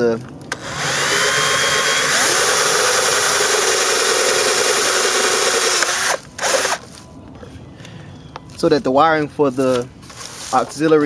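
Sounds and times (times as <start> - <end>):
cordless drill boring through plastic: 0.5 - 6.8.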